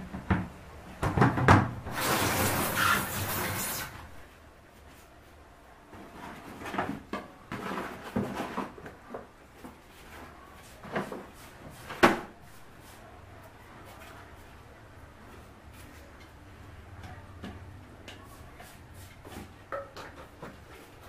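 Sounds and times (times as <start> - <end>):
household items knocking and rustling: 0.0 - 2.1, 6.0 - 10.2.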